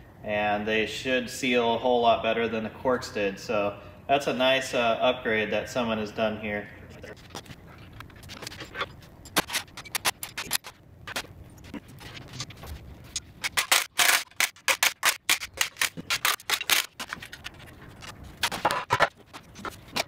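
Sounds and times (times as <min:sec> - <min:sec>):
hand tools clicking on metal: 0:13.1 - 0:18.6.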